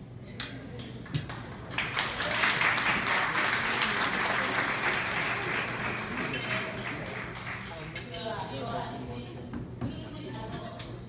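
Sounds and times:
audience applause: 0:01.3 - 0:07.8.

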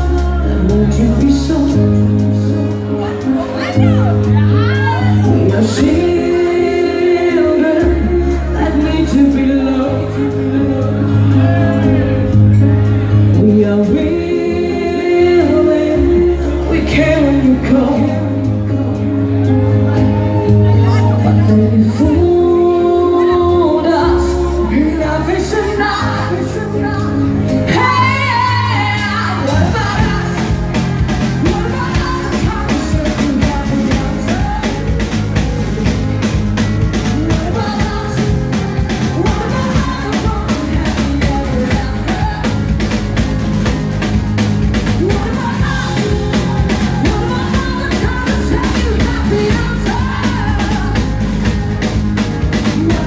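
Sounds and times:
woman singing into a microphone: 0:00.0 - 0:43.4, 0:44.6 - 0:53.0
live band playing: 0:00.0 - 0:53.0
steady drum beat: 0:27.7 - 0:53.0.

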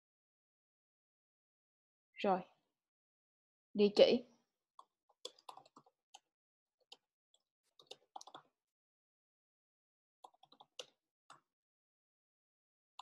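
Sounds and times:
faint keyboard typing: 0:04.8 - 0:06.3, 0:07.8 - 0:08.5, 0:10.2 - 0:11.4.

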